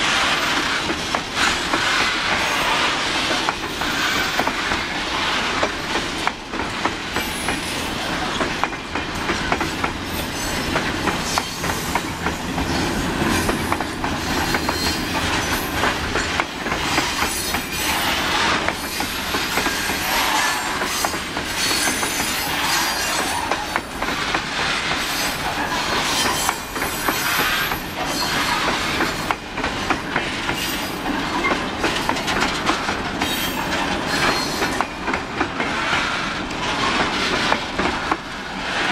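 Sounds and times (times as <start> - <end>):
train wheels clacking over rail joints: 0.0 - 38.9
high wheel squeal: 17.1 - 23.8, 25.1 - 28.8.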